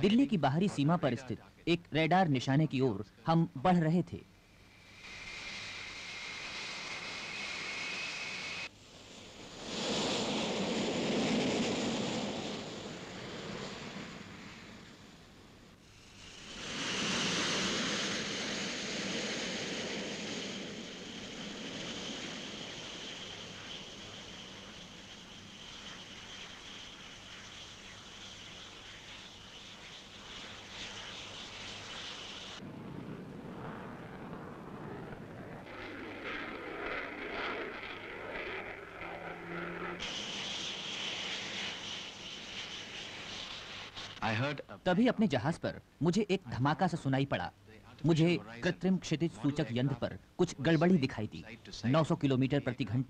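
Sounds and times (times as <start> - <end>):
jet aircraft flying past: 4.4 - 44.7.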